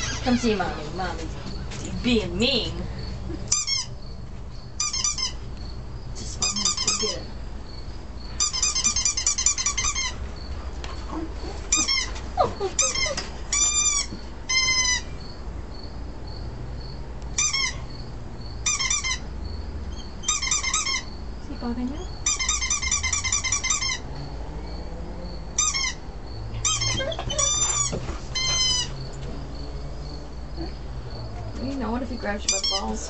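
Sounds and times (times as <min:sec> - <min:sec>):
high-pitched squeaks from phone speaker: 0:00.0 - 0:00.6, 0:26.7 - 0:28.9.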